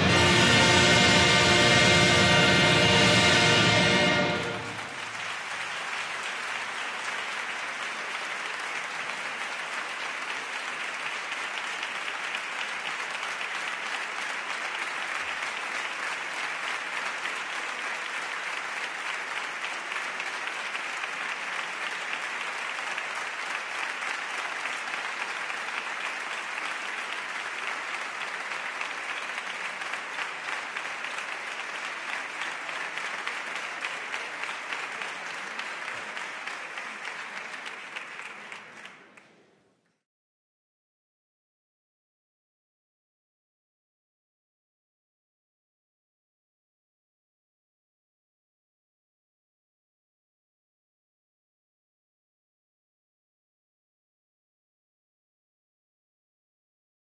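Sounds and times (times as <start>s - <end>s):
audience applauding: 0.0s - 39.5s.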